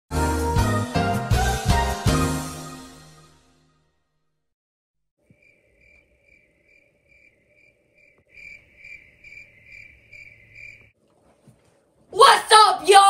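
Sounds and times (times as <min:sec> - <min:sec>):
cricket chirping: 0:05.2 - 0:11.0.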